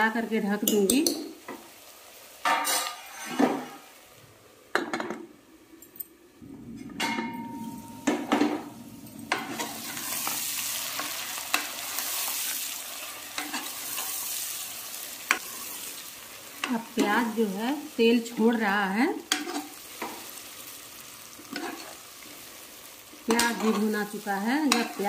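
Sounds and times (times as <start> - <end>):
onions sizzling in oil: 0.0 - 4.7, 7.2 - 25.0.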